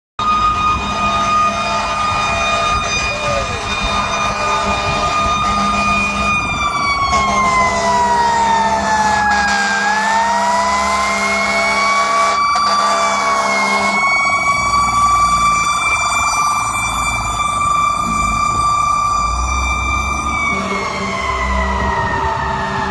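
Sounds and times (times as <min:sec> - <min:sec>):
fire engine siren wailing: 0:00.2 - 0:22.9
truck engine: 0:00.2 - 0:22.9.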